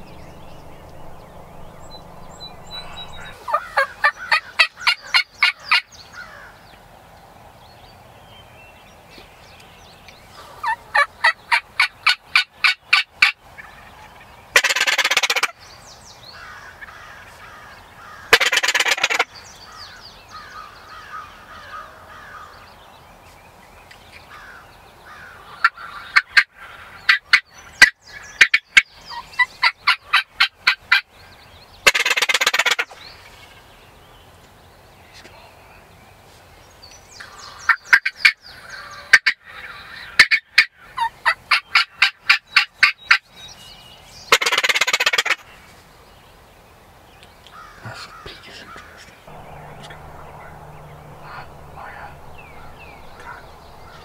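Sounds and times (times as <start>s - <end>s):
turkeys yelping: 0.0s - 5.8s, 14.6s - 15.5s, 18.3s - 19.3s, 31.9s - 33.0s, 37.7s - 43.2s, 44.3s - 45.4s, 47.7s - 54.0s
turkey gobbles: 47.8s - 54.0s.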